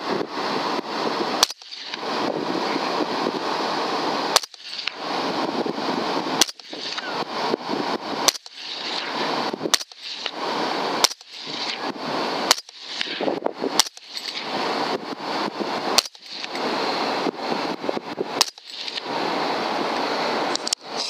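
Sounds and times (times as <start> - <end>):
steady hiss: 0.0 - 21.0
rifle shots: 1.4 - 2.0, 4.3 - 5.0, 6.4 - 7.2, 8.2 - 10.4, 11.0 - 14.6, 15.9 - 16.6, 18.4 - 19.1.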